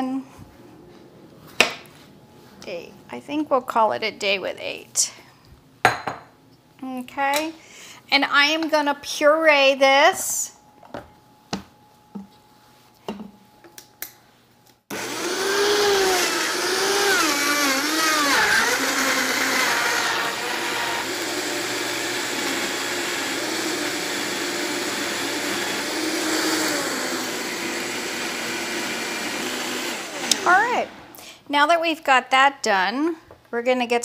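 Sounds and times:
blender motor whirring: 14.9 - 31.0.

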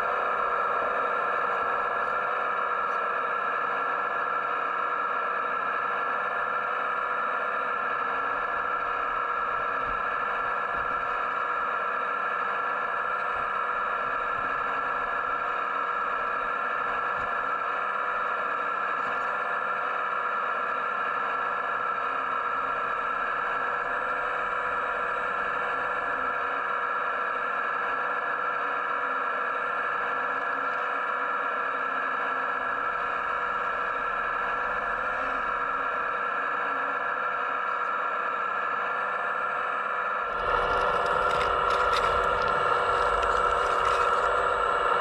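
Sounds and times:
model excavator whine: 0.0 - 45.0.

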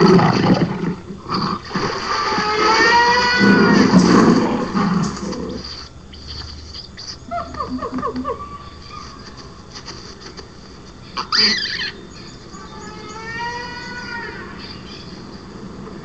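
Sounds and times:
animal roaring call: 0.0 - 5.7
monkey shrieks: 11.2 - 12.0.

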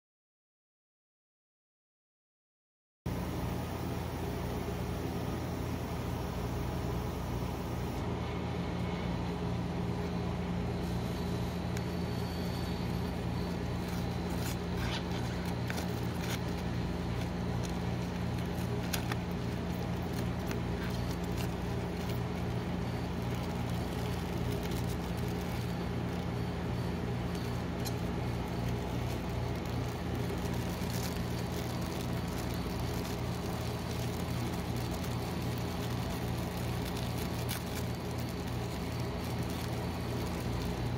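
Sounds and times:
refrigeration compressor hum: 3.1 - 40.9
plastic wrappers crinkling: 11.6 - 40.9.

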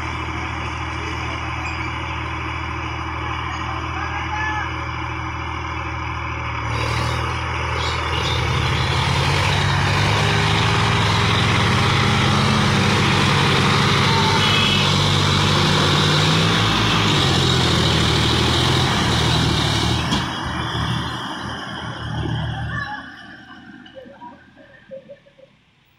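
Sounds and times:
tractor diesel engine revving: 0.0 - 24.6
tyres churning through mud: 6.0 - 25.0.

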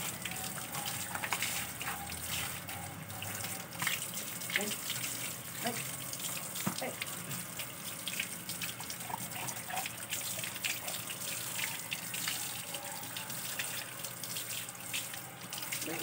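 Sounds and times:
hose water flowing: 0.0 - 16.0
water splashing on concrete: 0.0 - 16.0.

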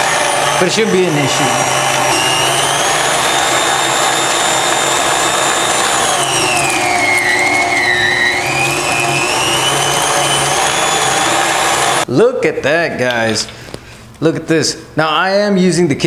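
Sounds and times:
stand mixer motor whine: 0.0 - 12.0.

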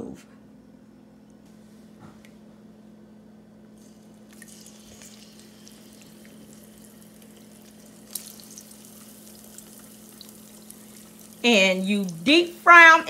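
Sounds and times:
steady low hum: 0.0 - 13.0
oil sizzling and popping: 3.8 - 12.6.

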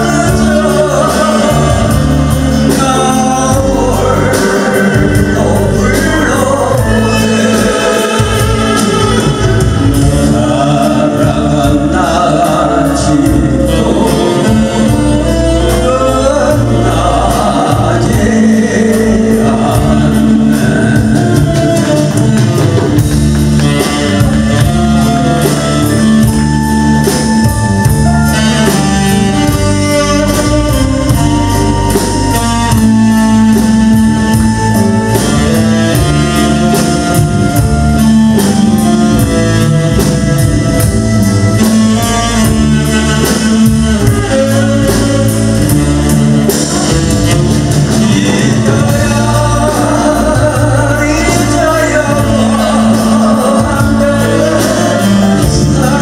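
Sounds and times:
man singing pop song: 0.0 - 9.2, 10.0 - 24.7, 47.8 - 56.0
band playing: 0.0 - 56.0.

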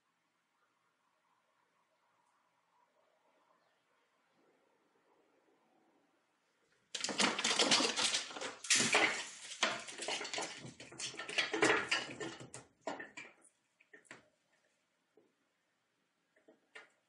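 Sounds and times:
cat claws scrabbling on tiles: 7.0 - 14.1.

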